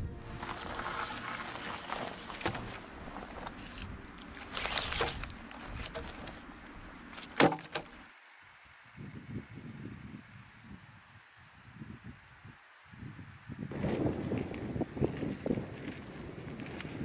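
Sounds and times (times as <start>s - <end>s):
rustling: 0.2s - 8.1s
wooden logs knocking and thudding: 0.4s - 8.1s.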